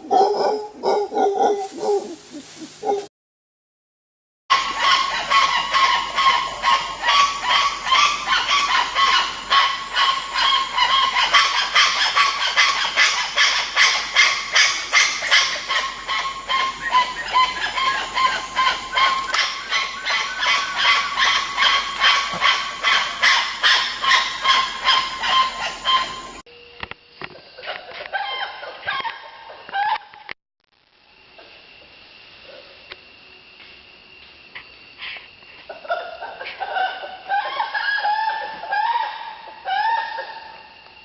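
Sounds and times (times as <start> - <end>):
monkeys calling: 4.5 - 26.4, 35.7 - 40.6.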